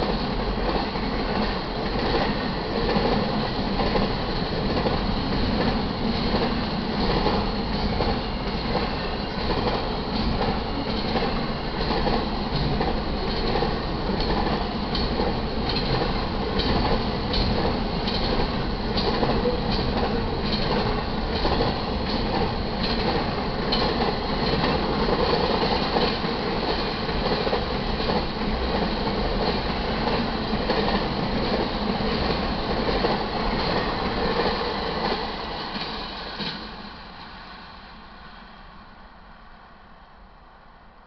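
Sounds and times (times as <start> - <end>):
freight train rumbling past: 0.0 - 41.0
wheels clicking over rail joints: 3.8 - 36.6.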